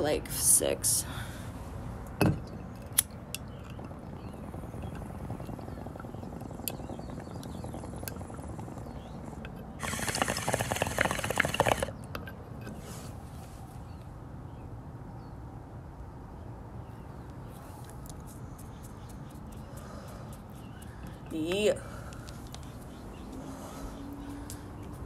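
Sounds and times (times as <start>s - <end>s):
water bubbling in a bong: 2.3s - 12.0s.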